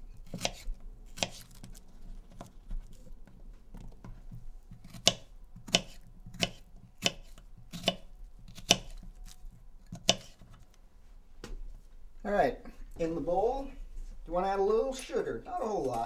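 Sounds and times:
knife slicing strawberries: 0.1 - 10.7.

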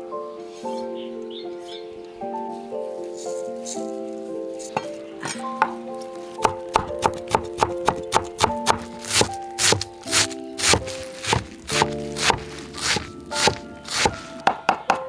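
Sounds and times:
background music: 0.0 - 15.0
cleaver chopping on wooden board: 6.4 - 15.0.

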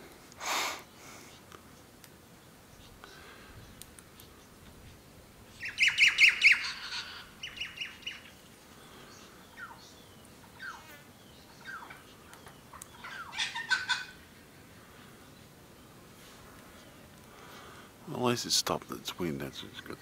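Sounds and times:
lorikeets screeching: 5.5 - 14.4.

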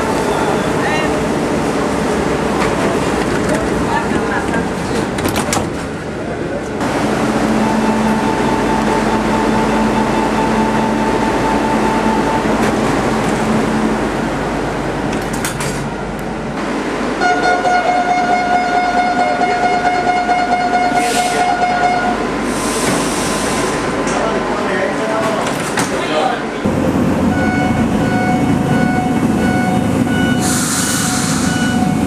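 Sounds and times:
train running noise: 0.0 - 32.0
steady warning tone: 7.0 - 14.1, 27.3 - 30.5.

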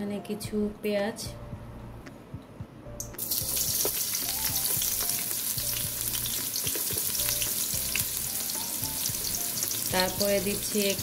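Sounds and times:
onion sizzling in hot oil: 3.2 - 11.0.

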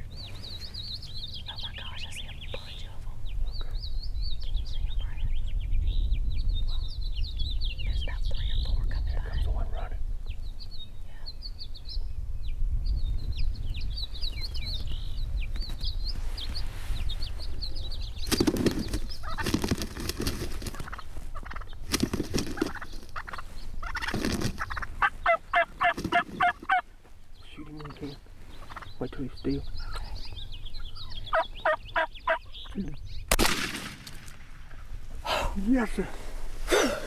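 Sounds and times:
heavy wing-beating and scuffling: 18.3 - 24.8, 25.7 - 26.6
loud turkey calls: 18.4 - 26.9, 27.7 - 32.8
high bird chirps: 27.4 - 33.3.

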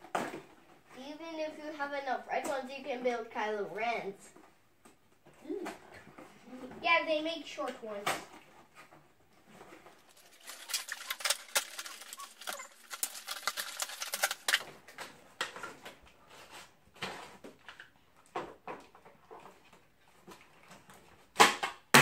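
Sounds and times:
packaging tearing and crackling: 9.9 - 14.9.

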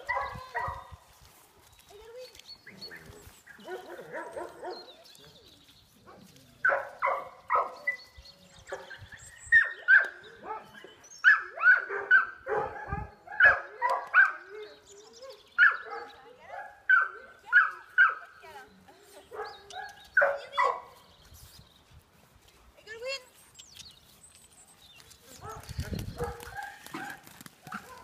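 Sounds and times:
dogs barking: 0.0 - 0.9, 3.6 - 4.9, 6.1 - 8.0, 8.7 - 14.4, 15.6 - 18.2, 19.3 - 21.0, 25.4 - 28.0.

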